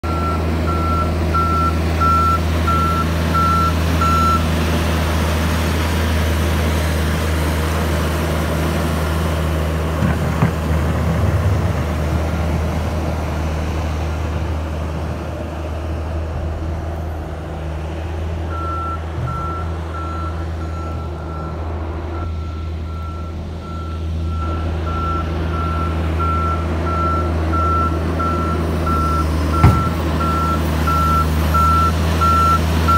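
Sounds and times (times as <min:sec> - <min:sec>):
heavy vehicle engine running: 0:00.0 - 0:32.9
reversing alarm beeping: 0:00.1 - 0:04.4, 0:18.5 - 0:32.9
sharp knocks: 0:29.6 - 0:30.0.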